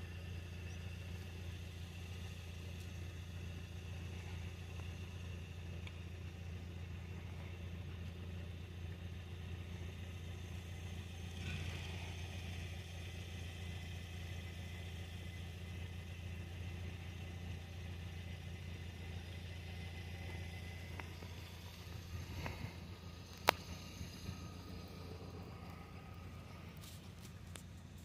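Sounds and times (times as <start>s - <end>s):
tram rumbling along track: 0.0s - 28.0s.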